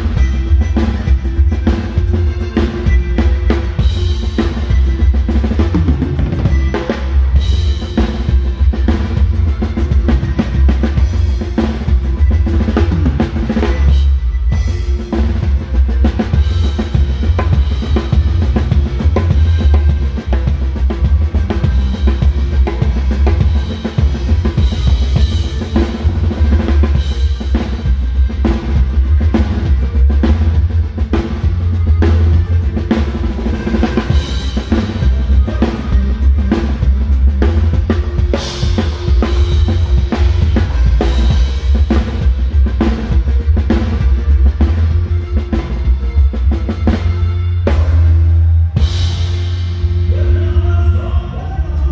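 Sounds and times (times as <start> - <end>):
band music: 0.0 - 51.9
drum kit playing: 0.0 - 51.9.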